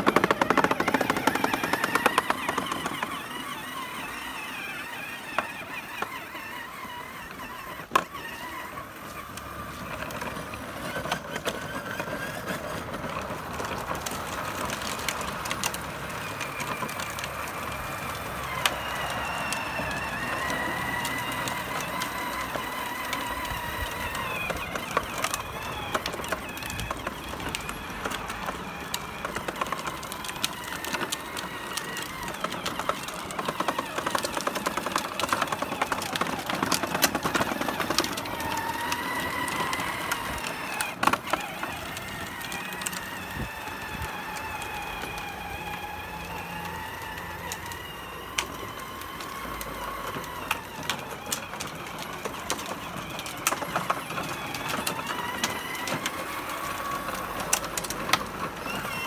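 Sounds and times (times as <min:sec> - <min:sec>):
electric motor whine: 0:00.0 - 0:59.0
plastic wheels crackling on asphalt: 0:00.0 - 0:59.0.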